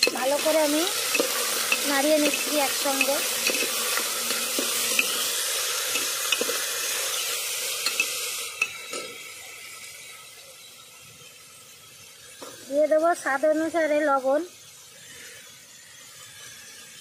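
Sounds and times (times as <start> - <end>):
food sizzling in hot oil: 0.0 - 17.0
metal ladle scraping pot: 0.9 - 7.2.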